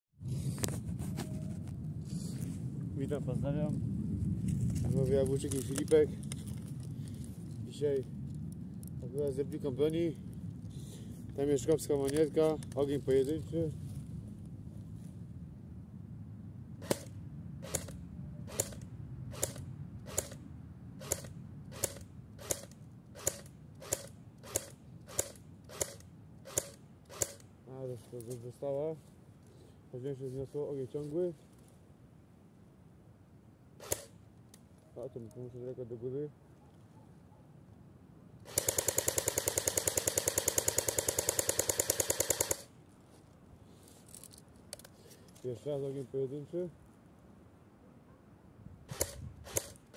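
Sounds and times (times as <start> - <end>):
airsoft gun single shots: 16.8 - 18.8
airsoft rifle full-auto burst: 16.8 - 18.8, 21.0 - 27.4, 33.8 - 34.2, 38.4 - 42.7, 48.9 - 49.9.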